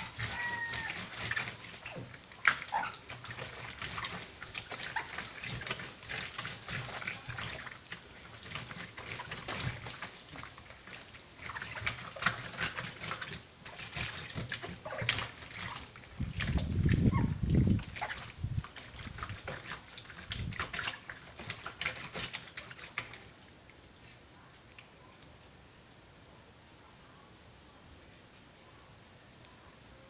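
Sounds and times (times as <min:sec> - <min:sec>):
wet paper scrubbed on washboard: 0:00.0 - 0:23.2
water splashing: 0:00.0 - 0:25.4.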